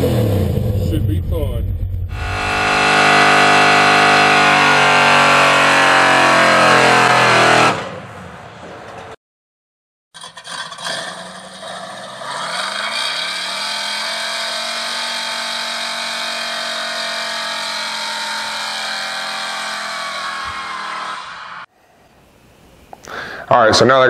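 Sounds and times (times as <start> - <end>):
engine starting and revving: 2.1 - 8.0, 10.2 - 21.2.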